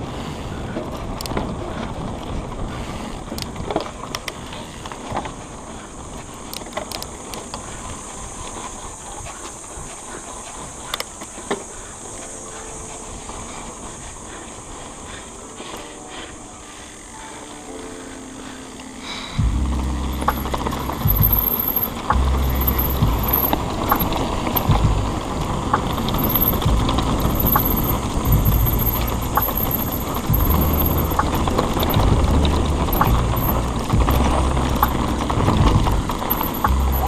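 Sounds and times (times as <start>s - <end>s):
wind buffeting microphone: 0.0s - 17.1s, 19.4s - 37.0s
bike clattering over bumps: 19.4s - 37.0s.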